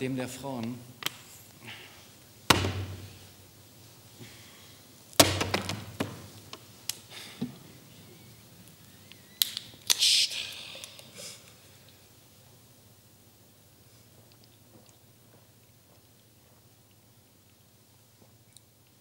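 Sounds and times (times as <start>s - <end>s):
knocks on stage floor: 2.5s - 3.1s, 5.2s - 6.2s
small objects clattering: 5.2s - 6.6s.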